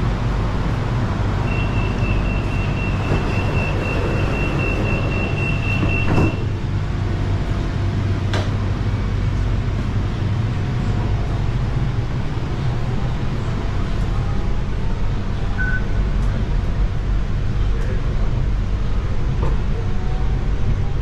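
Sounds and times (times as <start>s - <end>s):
train car hum: 0.0s - 21.0s
sliding doors shutting with thud: 2.3s - 6.6s.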